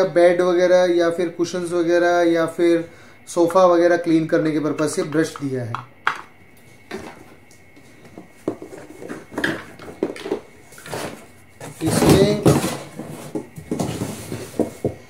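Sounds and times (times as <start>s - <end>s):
plastic parts knocking and clicking: 4.8s - 6.3s, 8.5s - 10.5s
cardboard box rustling and scraping: 10.7s - 14.9s.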